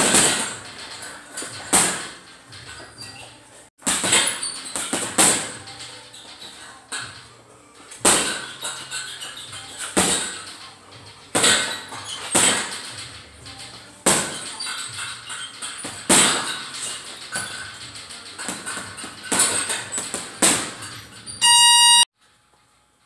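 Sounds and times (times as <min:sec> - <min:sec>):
punches thudding on heavy bag: 0:01.5 - 0:02.2, 0:03.8 - 0:05.6, 0:08.0 - 0:08.5, 0:09.9 - 0:10.4, 0:14.0 - 0:14.5, 0:15.9 - 0:16.6.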